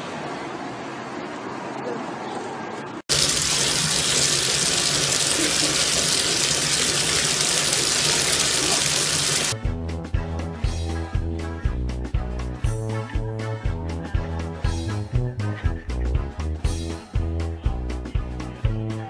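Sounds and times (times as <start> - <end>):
water running into bathtub: 3.1 - 9.6
music with steady beat: 9.6 - 19.0.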